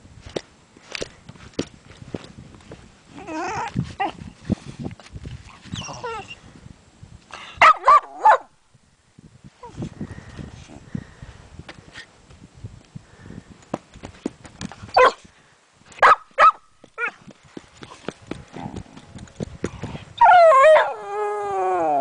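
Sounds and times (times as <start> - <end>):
dog barking: 7.6 - 8.5, 15.0 - 15.2, 16.0 - 17.2
dog howling: 20.2 - 22.0.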